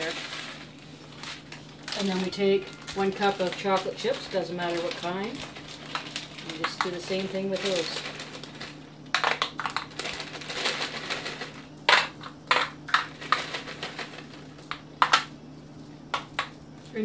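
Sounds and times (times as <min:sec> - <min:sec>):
plastic bag crinkling: 0:00.0 - 0:11.7
chocolate chips pattering on foil: 0:00.0 - 0:15.3.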